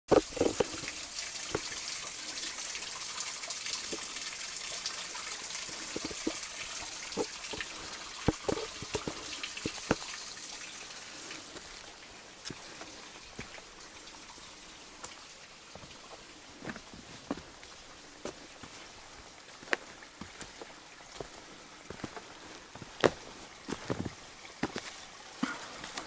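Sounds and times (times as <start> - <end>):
brook trickling over rocks: 0.1 - 26.0.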